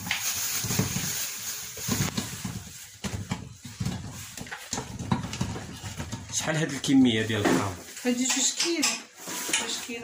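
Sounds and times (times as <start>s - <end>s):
lemons knocking into metal pot: 1.9s - 6.7s.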